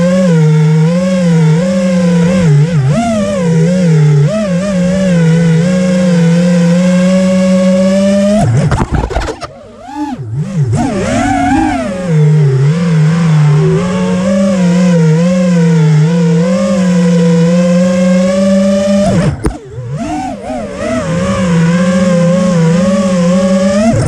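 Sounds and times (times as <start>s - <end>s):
drone motors whining: 0.0s - 24.0s.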